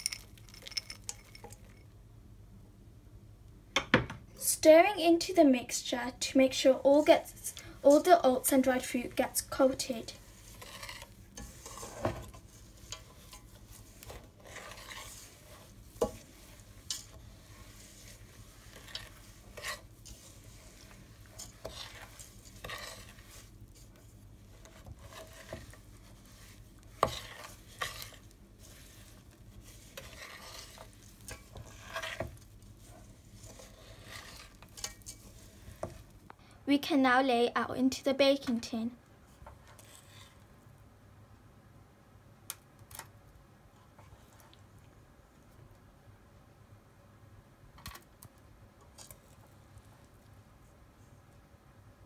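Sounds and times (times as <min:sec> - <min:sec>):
spoon stirring sticky oat mixture: 0:00.0 - 0:01.8, 0:06.5 - 0:36.3, 0:39.2 - 0:40.5, 0:48.0 - 0:51.3.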